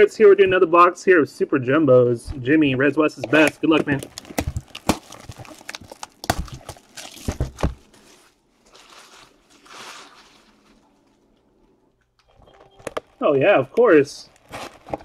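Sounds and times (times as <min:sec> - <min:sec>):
cardboard boxes knocking: 0:06.3 - 0:07.9.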